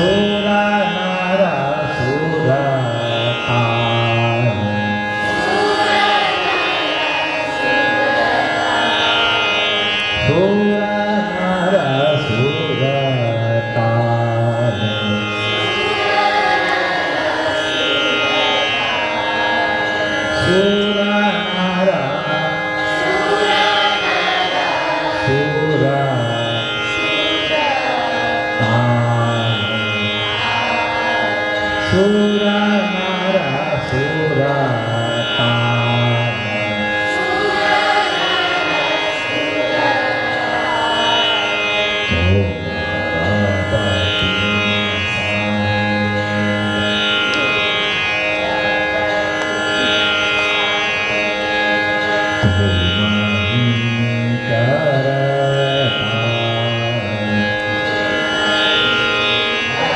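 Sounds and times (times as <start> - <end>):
man singing gliding phrases: 0.0 - 6.6, 8.8 - 19.5, 20.3 - 49.3, 52.2 - 58.0, 59.7 - 59.9
tanpura drone: 0.0 - 59.9.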